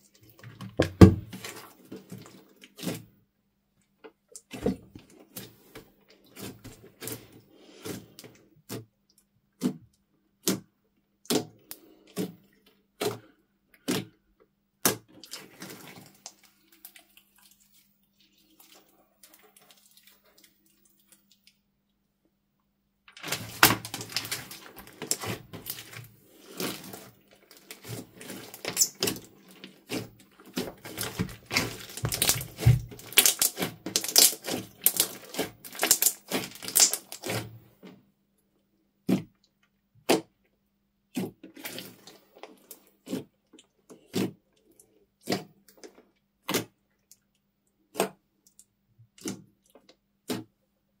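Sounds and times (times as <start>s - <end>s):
slime crackling and popping: 23.2s - 37.5s.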